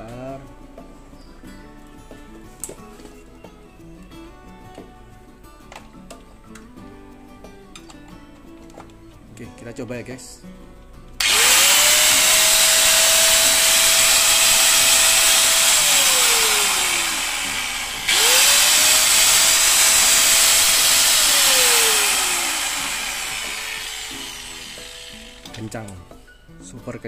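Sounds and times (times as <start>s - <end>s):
angle grinder motor whining: 11.2s - 25.8s.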